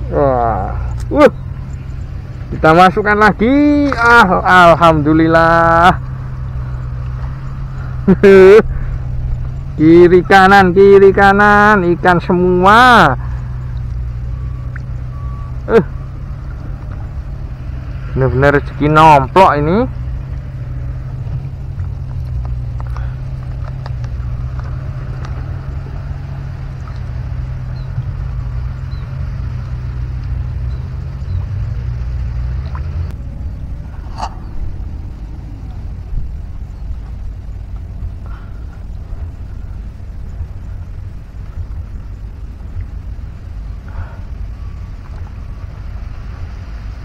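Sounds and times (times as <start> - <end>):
wind buffeting microphone: 13.3 - 47.0.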